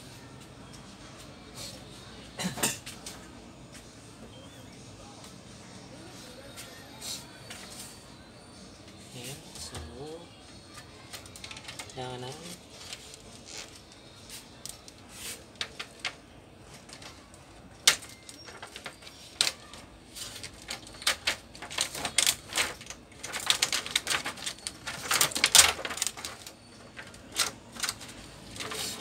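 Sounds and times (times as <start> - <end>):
plastic sheet crackling and rustling: 10.7 - 29.0.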